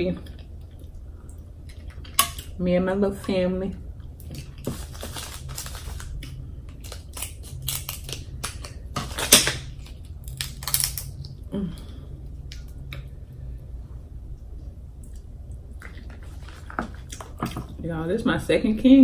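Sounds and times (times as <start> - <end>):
shell cracking and crackling: 4.4 - 11.4.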